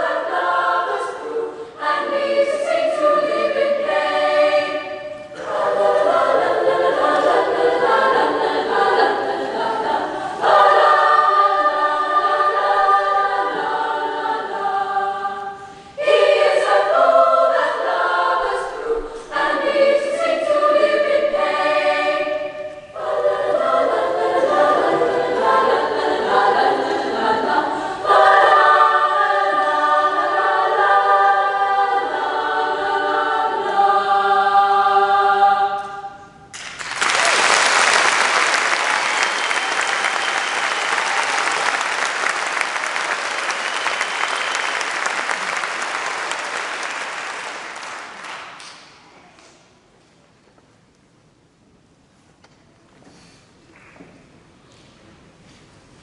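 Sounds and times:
mixed-voice choir singing: 0.0 - 36.6.

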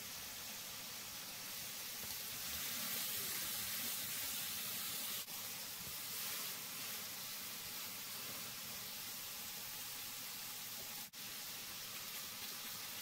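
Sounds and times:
meat sizzling on a griddle: 0.0 - 13.0.

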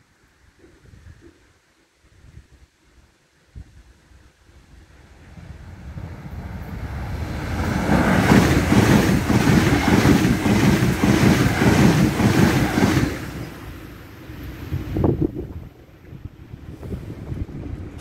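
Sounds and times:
high-speed train passing: 4.6 - 18.0
wheels on rail rhythmic beat: 6.0 - 13.7.

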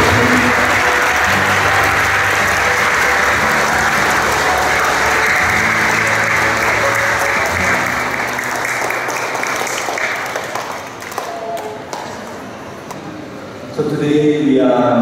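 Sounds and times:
instrumental music: 0.0 - 9.9
congregation clapping: 0.0 - 13.0.

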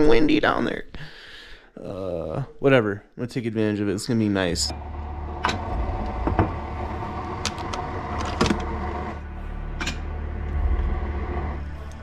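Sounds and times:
steady low hum: 4.4 - 12.0.

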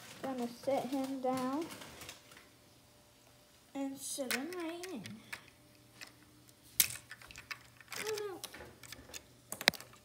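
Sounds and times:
plastic toy pieces clicking: 4.2 - 6.1, 6.8 - 10.0.

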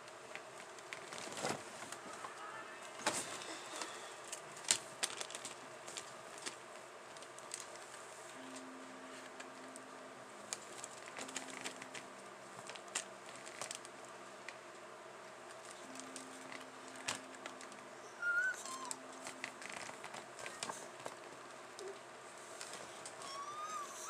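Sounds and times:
plastic bag crinkling: 3.1 - 8.0, 10.4 - 14.0, 18.7 - 22.0
low hum: 5.5 - 24.0.

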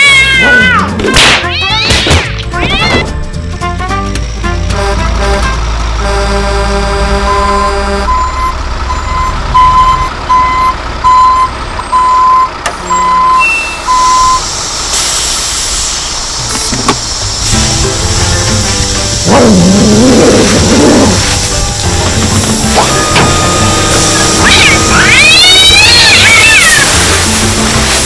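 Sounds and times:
diesel engine running: 2.4 - 28.0
reversing alarm beeping: 7.2 - 14.5, 21.5 - 26.3
hiss: 14.3 - 22.9, 23.8 - 28.0.

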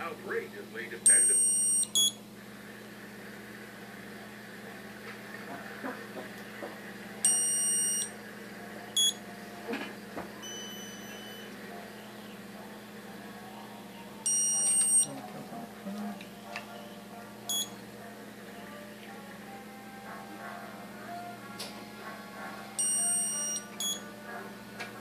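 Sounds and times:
steady low hum: 0.0 - 25.0
curing light beeping: 1.0 - 2.2, 7.2 - 8.2, 9.0 - 9.2, 10.4 - 11.6, 14.2 - 15.1, 16.8 - 17.8, 22.8 - 24.1.

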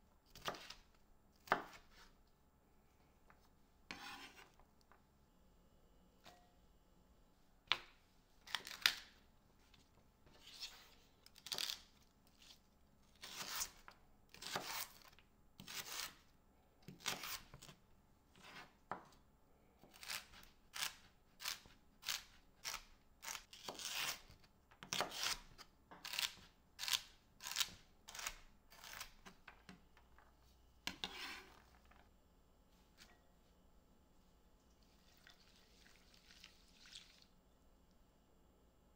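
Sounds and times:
knife slicing on cutting board: 3.9 - 4.5, 30.9 - 31.6.

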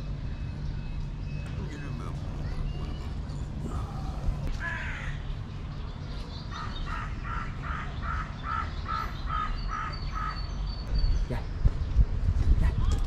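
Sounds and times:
low background rumble: 0.0 - 13.0
bird calling: 1.3 - 5.5, 6.1 - 10.9.

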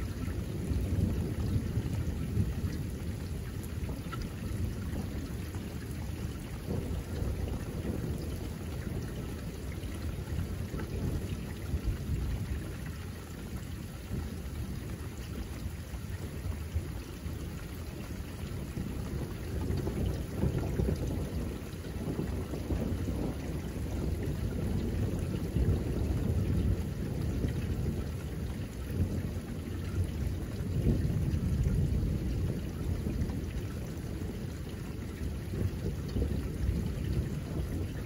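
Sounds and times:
thunder rumbling: 0.0 - 12.7, 18.2 - 38.0
steady rain: 0.0 - 38.0
raindrop ticks: 3.5 - 13.7.

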